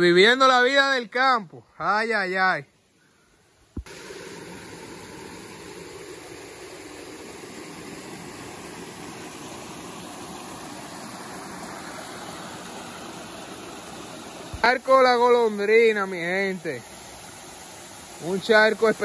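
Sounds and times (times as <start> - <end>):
waterfall pouring into rock pool: 3.8 - 19.0.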